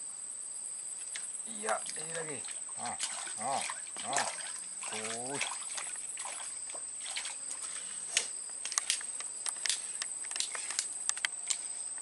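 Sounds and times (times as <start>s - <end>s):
insects droning: 0.0s - 12.0s
fish splashing at surface: 1.1s - 9.0s.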